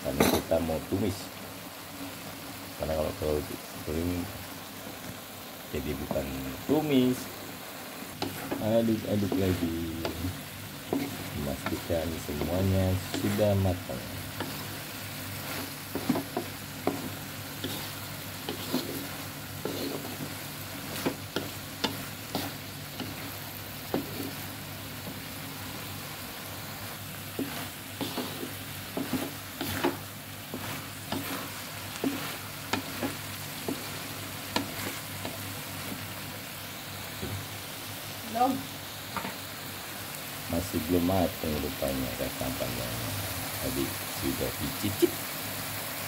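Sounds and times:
food sizzling in a wok: 0.0s - 46.0s
spatula scraping and tapping pan: 8.1s - 10.2s, 10.8s - 13.4s, 14.3s - 14.8s, 15.4s - 25.2s, 27.3s - 36.0s.

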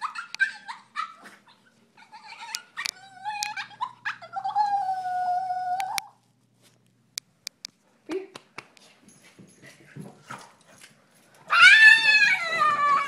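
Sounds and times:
dog whining: 0.0s - 6.2s, 11.5s - 13.0s.

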